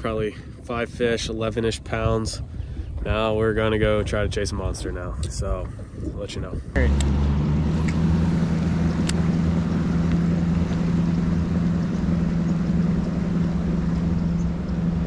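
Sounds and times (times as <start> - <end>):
outboard motor drone: 0.0 - 15.0.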